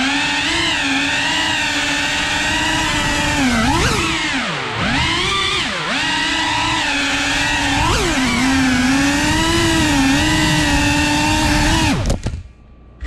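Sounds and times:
drone motors whining: 0.0 - 12.4.

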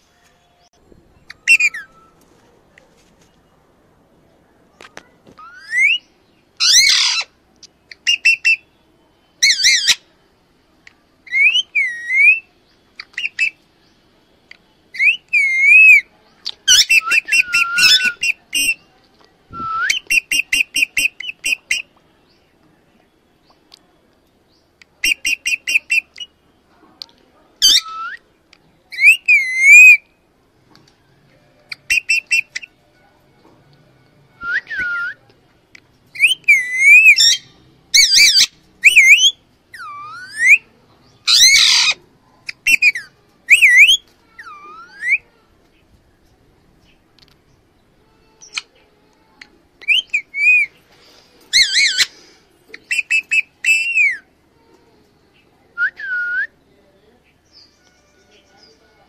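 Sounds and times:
parakeet whistles and squawks: 1.2 - 2.2, 5.4 - 6.0, 6.6 - 7.3, 9.4 - 10.0, 11.3 - 13.6, 14.9 - 18.8, 27.6 - 28.2, 28.9 - 30.0, 36.2 - 40.7, 41.3 - 45.4, 49.8 - 50.8, 51.5 - 52.1, 52.7 - 54.3.

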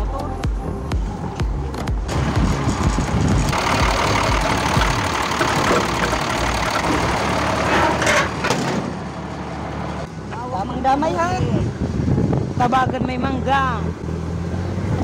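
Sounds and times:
truck engine running loudly: 1.0 - 10.7.

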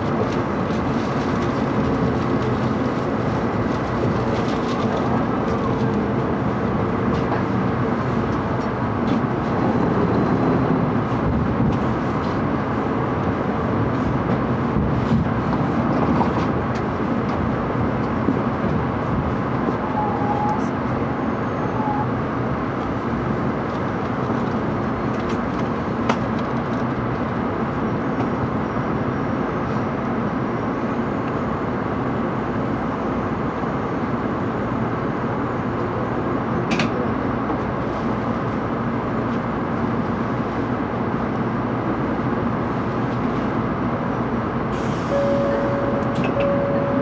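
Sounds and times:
train interior rumble and hum: 0.0 - 47.0
steady single tone: 45.1 - 47.0.

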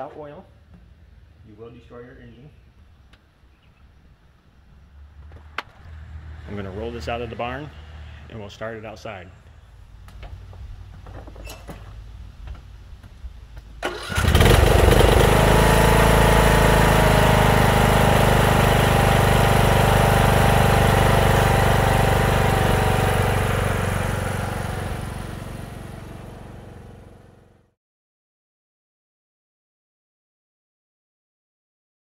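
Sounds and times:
riding mower engine running: 13.8 - 27.7.

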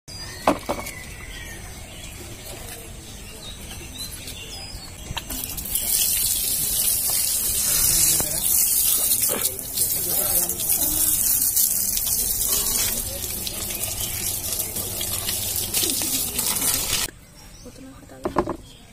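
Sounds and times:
hose water spraying: 5.2 - 17.1.

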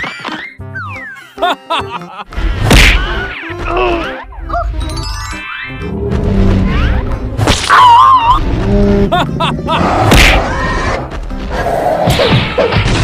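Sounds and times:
background music: 0.0 - 13.0
cartoon hits and thuds: 2.6 - 3.1.

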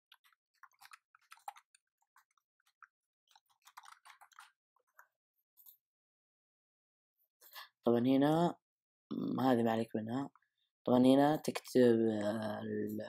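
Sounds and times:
computer keyboard typing: 0.1 - 5.0.

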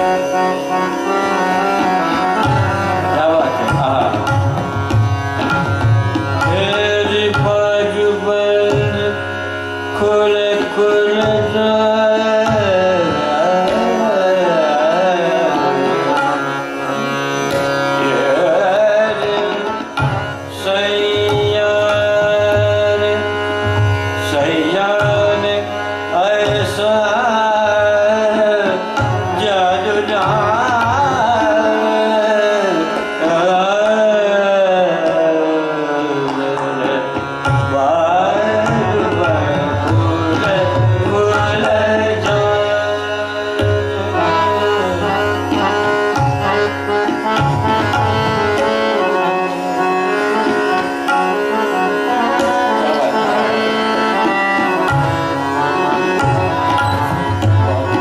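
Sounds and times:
man singing: 0.0 - 4.7, 6.4 - 58.0
harmonium: 0.0 - 58.0
tanpura drone: 0.0 - 58.0
tabla strokes: 1.7 - 9.2, 43.6 - 58.0.

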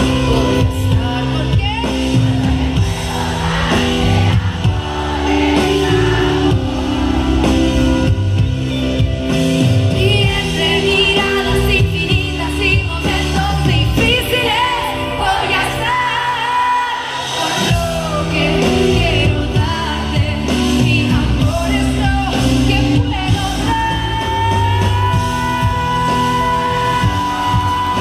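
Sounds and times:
live pop band playing: 0.0 - 28.0
woman singing: 9.9 - 28.0.

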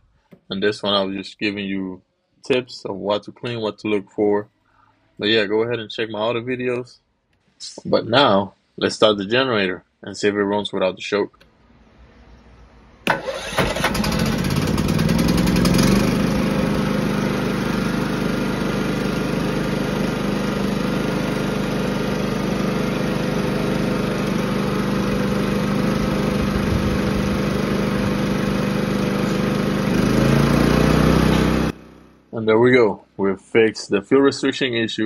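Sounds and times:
generator electric starter cranking: 13.1 - 19.7
generator engine running: 13.1 - 32.2.

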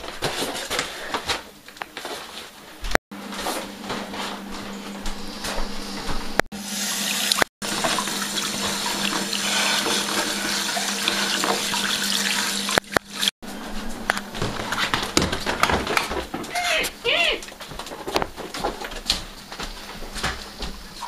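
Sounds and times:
tap water running into sink: 6.6 - 13.3.

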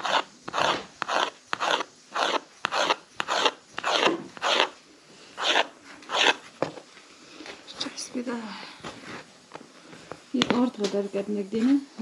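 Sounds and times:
knife cutting dough: 0.0 - 4.8, 5.4 - 6.4.

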